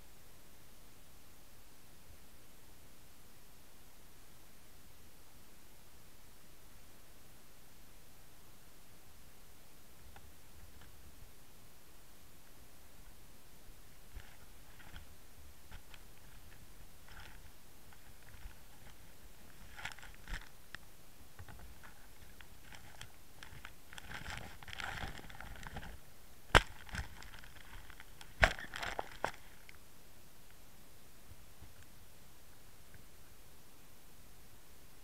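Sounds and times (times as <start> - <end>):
camera rubbing against fabric: 14.1 - 15.1, 15.7 - 20.5, 21.4 - 26.0.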